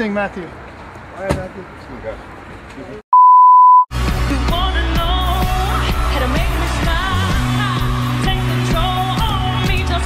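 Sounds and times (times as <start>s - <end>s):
woman singing into microphone: 4.3s - 10.0s.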